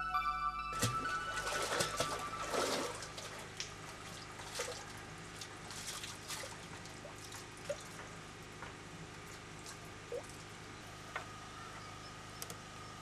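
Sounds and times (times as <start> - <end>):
music track: 0.0 - 3.4
water dripping and splashing: 0.8 - 10.6.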